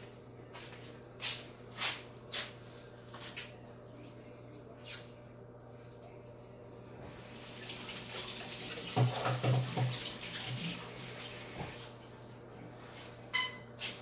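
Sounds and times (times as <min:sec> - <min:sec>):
kitchen tap running: 0:07.2 - 0:12.0.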